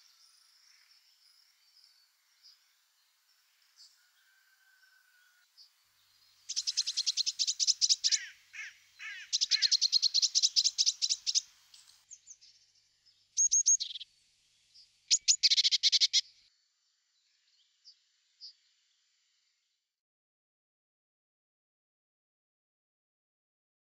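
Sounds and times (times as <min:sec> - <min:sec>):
short falling bird calls: 0:06.5 - 0:12.0
nestlings chirping rapidly: 0:09.0 - 0:11.4.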